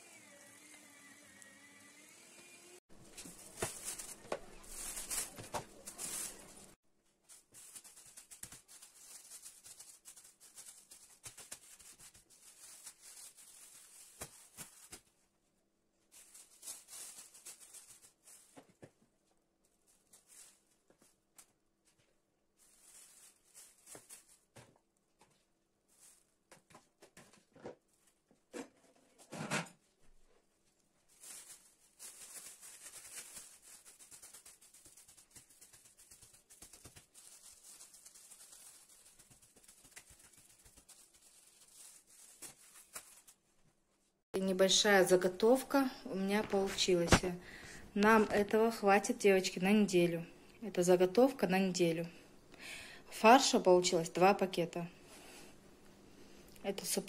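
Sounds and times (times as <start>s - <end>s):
plastic bags rustling and crinkling: 2.9s - 15.2s, 16.0s - 18.9s, 19.7s - 28.2s, 30.9s - 43.8s, 44.4s - 50.2s.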